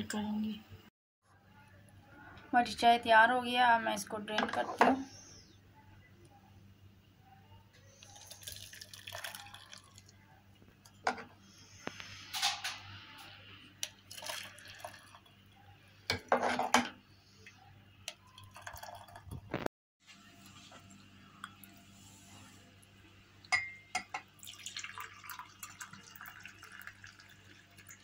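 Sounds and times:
tea pouring and splashing: 0:08.0 - 0:10.1, 0:13.8 - 0:15.3, 0:18.1 - 0:19.6, 0:24.2 - 0:28.0.

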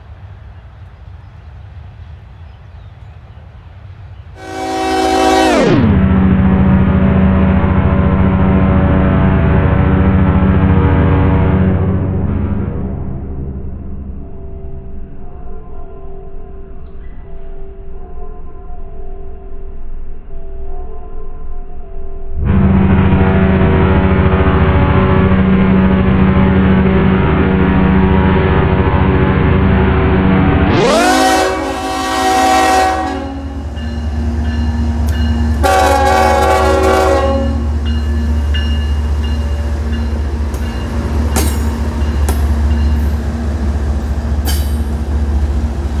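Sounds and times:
diesel locomotive engine rumbling: 0:00.0 - 0:46.0
wheels clacking over rail joints: 0:37.8 - 0:46.0.

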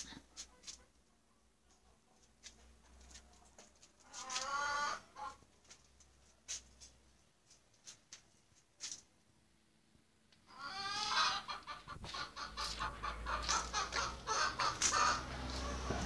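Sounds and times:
chicken clucking: 0:00.0 - 0:05.5, 0:10.4 - 0:16.0.

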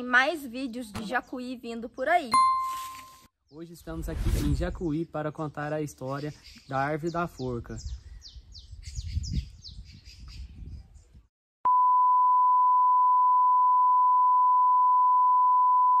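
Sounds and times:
high-pitched test-tone beep: 0:02.4 - 0:03.3
bird chirping: 0:04.9 - 0:11.2.

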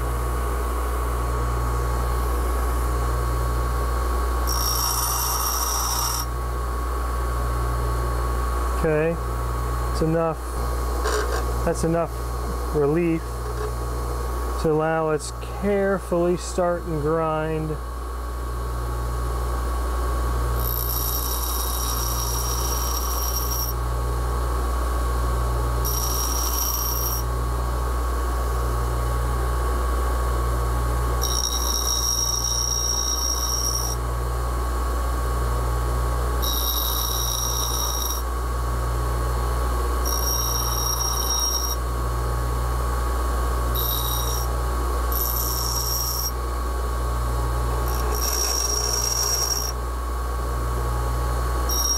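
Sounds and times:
bench grinder humming: 0:00.0 - 0:06.4, 0:10.0 - 0:14.4, 0:20.4 - 0:23.9, 0:25.8 - 0:27.4, 0:31.0 - 0:34.1, 0:36.3 - 0:51.9
high ringing grinding whine: 0:00.0 - 0:51.9.

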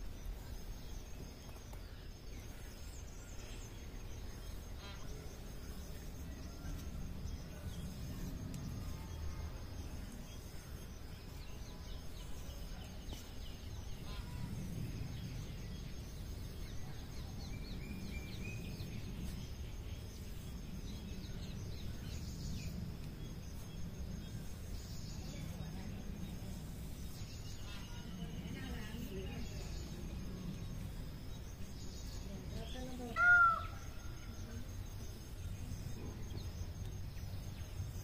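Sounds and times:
birds chirping: 0:00.0 - 0:38.0.

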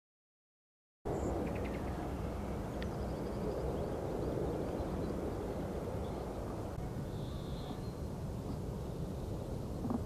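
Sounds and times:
distant jet rumble: 0:01.1 - 0:10.0
faint bird chirps: 0:02.7 - 0:10.0.

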